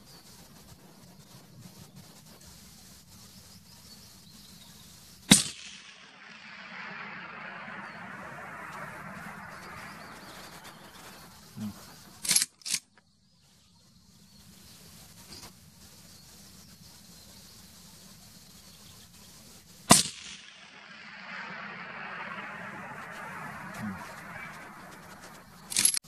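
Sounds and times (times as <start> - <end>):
rifle shot: 5.3 - 9.8, 19.9 - 26.0
rushing sound: 5.3 - 12.0, 19.9 - 26.0
sharp clacks: 19.9 - 26.0.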